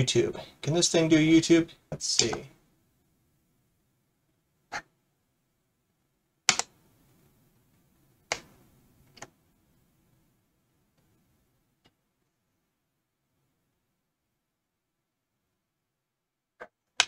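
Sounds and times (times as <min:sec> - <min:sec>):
computer mouse clicks: 0:02.2 - 0:02.4, 0:06.5 - 0:06.8.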